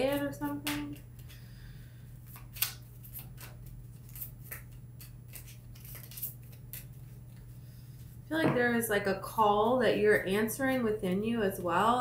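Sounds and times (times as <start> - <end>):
steady low hum: 0.0 - 12.0
cards shuffling snaps and flicks: 0.1 - 1.4, 2.2 - 7.4.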